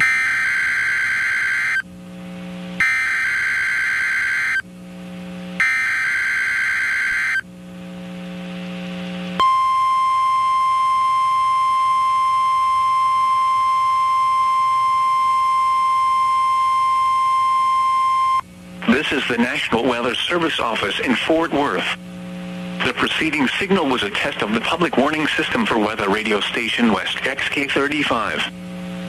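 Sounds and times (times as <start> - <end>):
steady alarm tone: 0.0 - 1.9, 2.8 - 4.7, 5.6 - 7.5, 9.4 - 22.0.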